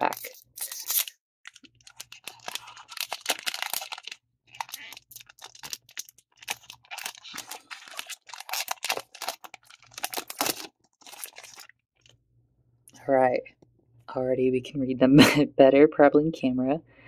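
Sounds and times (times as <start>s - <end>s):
foil pack tearing and crackling: 0.0s - 12.1s.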